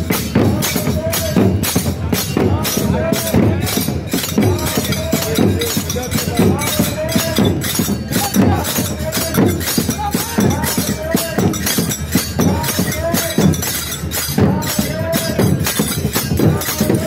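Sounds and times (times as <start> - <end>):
crowd chanting: 0.0 - 17.0
drums beaten in fast rhythm: 0.0 - 17.0.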